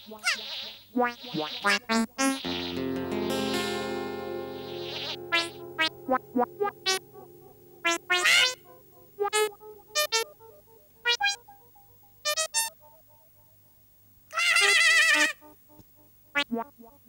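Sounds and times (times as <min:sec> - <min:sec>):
sparse synthesizer cartoon music: 0:02.5 - 0:10.2.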